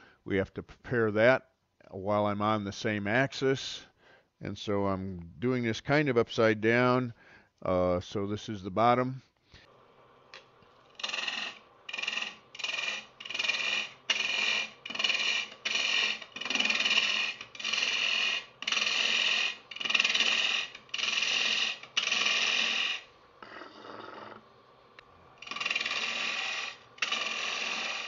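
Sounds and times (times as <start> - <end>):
lathe hum: 9.7 - 28.0
gouge cutting wood on lathe: 10.8 - 28.0.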